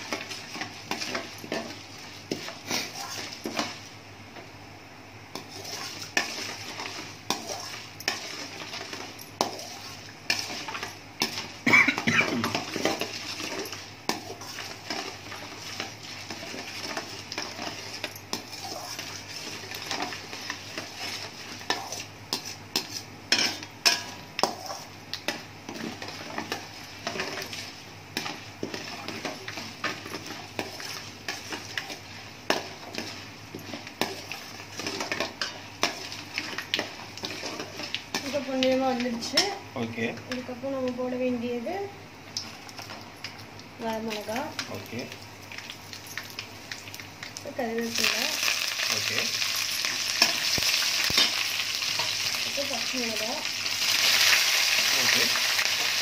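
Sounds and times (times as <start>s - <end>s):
light sizzle of frying: 0.0s - 56.0s
spatula scraping a metal pan: 5.4s - 11.4s, 12.4s - 24.9s.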